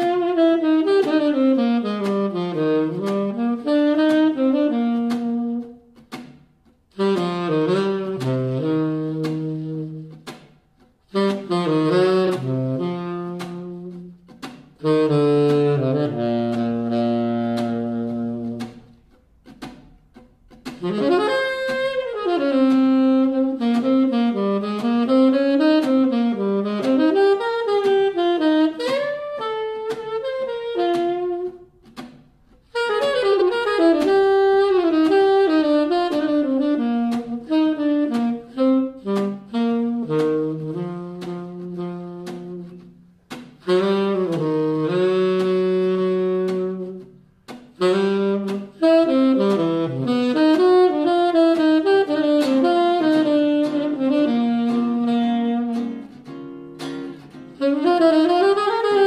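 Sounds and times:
saxophone playing jazz: 0.0 - 59.0
acoustic guitar strumming: 54.6 - 59.0.

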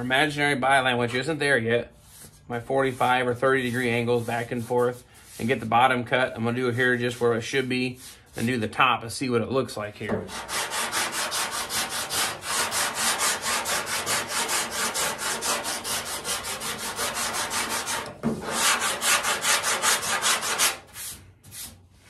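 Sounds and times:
sanding block scrubbing steel: 10.3 - 21.7.

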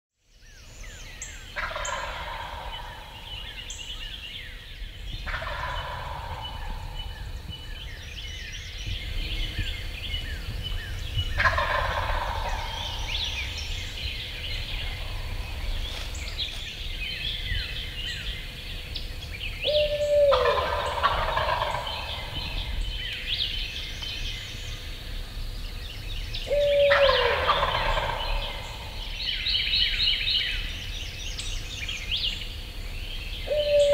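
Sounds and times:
songbirds chirping: 0.2 - 33.9
turkey gobbling: 1.6 - 3.3, 5.3 - 7.0, 11.4 - 13.6, 19.7 - 22.7, 26.5 - 29.1, 33.5 - 33.9.

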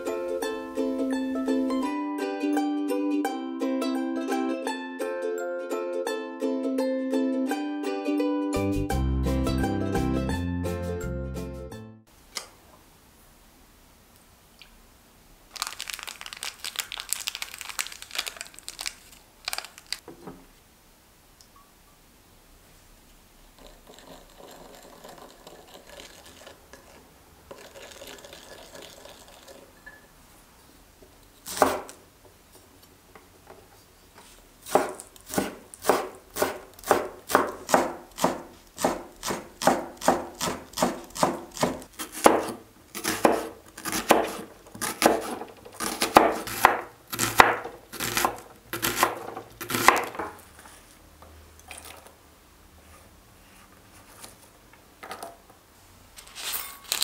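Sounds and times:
cleaver chopping on wooden board: 34.7 - 50.3.

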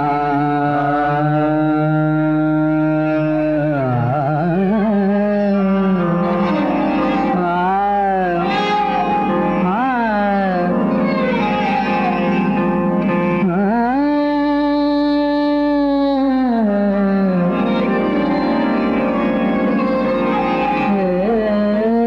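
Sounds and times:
man singing classical vocals: 0.0 - 8.8, 9.6 - 11.5, 13.4 - 18.5, 20.7 - 22.0.

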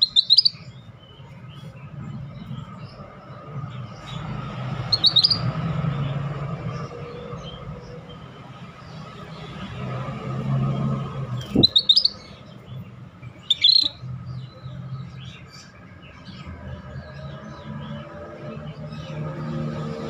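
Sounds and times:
bird chattering calls: 0.0 - 0.8, 4.9 - 5.6, 11.4 - 12.6, 13.3 - 14.0
faint bird chirps: 0.0 - 2.8, 4.9 - 5.6, 11.4 - 14.1.

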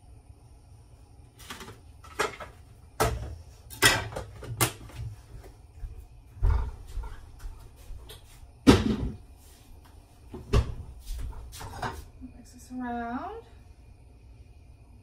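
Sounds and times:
dishes clattering on counter: 2.1 - 4.7, 11.3 - 12.1.

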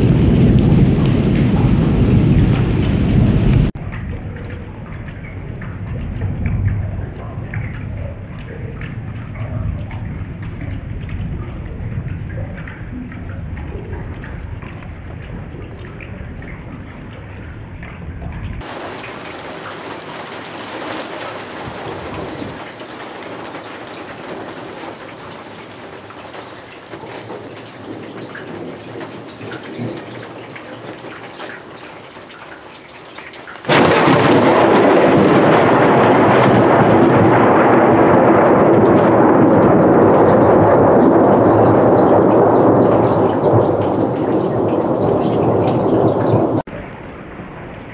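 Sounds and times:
heavy rain: 0.0 - 4.1, 18.6 - 46.9
thunder rumbling: 0.0 - 47.8.

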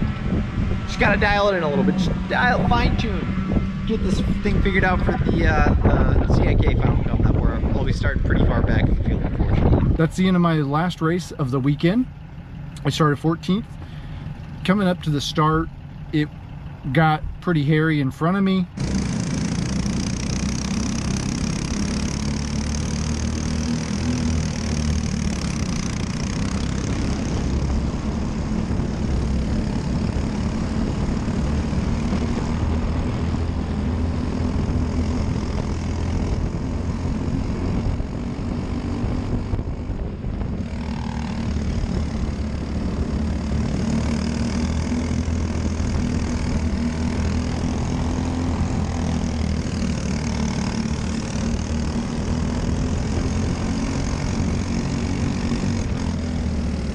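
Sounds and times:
wind noise: 0.0 - 10.4, 23.7 - 49.3
kart engine running hard: 0.0 - 10.7, 18.6 - 56.9.

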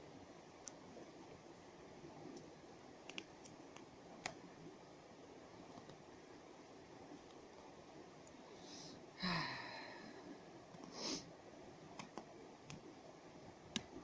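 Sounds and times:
person sighing: 9.2 - 10.4.

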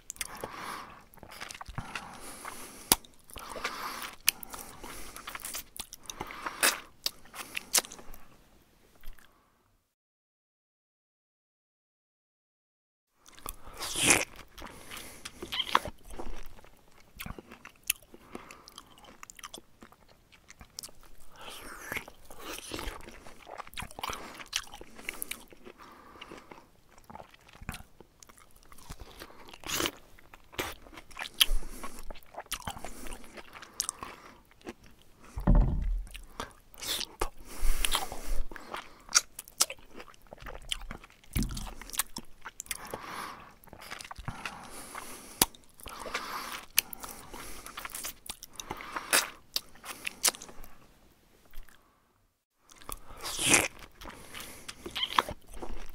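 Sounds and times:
dull bumps: 35.4 - 36.1.

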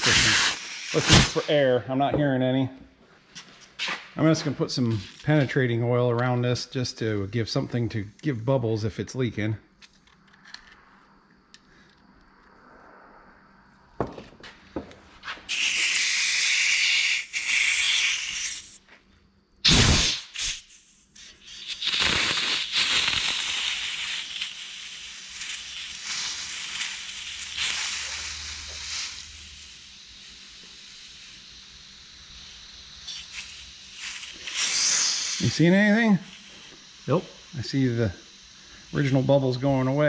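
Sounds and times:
aerosol can spraying: 0.0 - 1.4, 15.2 - 18.8, 19.6 - 40.0
air nozzle hissing: 0.0 - 1.7, 15.2 - 18.8, 19.6 - 40.0
compressed air burst: 0.0 - 1.8, 10.7 - 18.8, 19.6 - 40.0.

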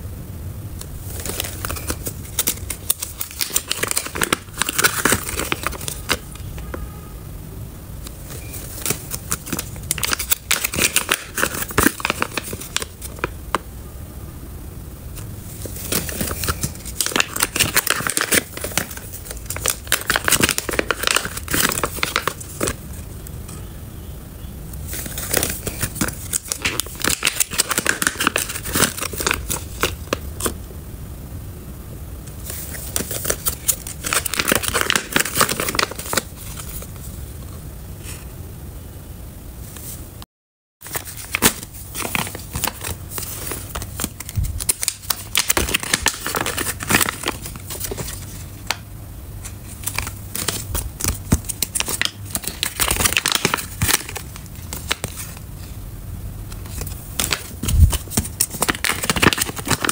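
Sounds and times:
foil pouches crinkling: 1.0 - 6.2, 8.2 - 13.4, 15.6 - 22.8, 24.9 - 30.6, 32.4 - 36.9, 40.8 - 48.8, 49.4 - 55.4, 56.5 - 59.9.

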